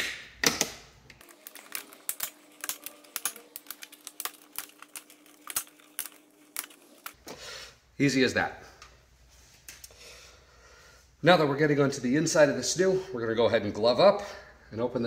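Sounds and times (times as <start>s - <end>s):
plastic clips clicking and snapping: 0.0s - 7.2s.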